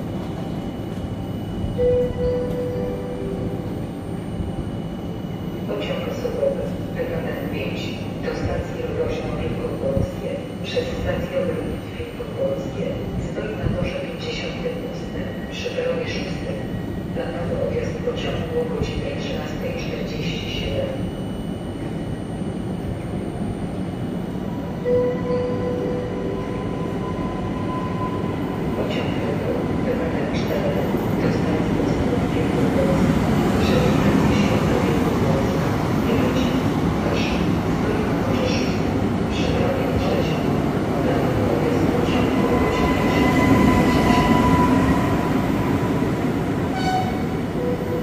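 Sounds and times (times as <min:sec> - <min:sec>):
train rumbling: 0:00.0 - 0:48.0
brief loud tone: 0:00.6 - 0:05.7, 0:24.8 - 0:28.6, 0:46.7 - 0:48.0.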